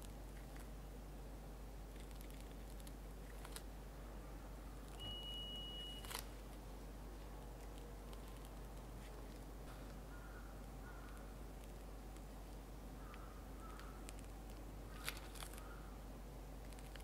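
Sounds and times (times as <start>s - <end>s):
high beep: 5.0s - 6.2s.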